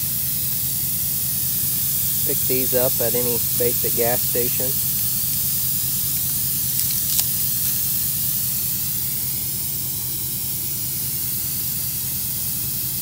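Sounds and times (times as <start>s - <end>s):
air hissing from tire: 0.0s - 13.0s
sharp click: 6.8s - 7.8s.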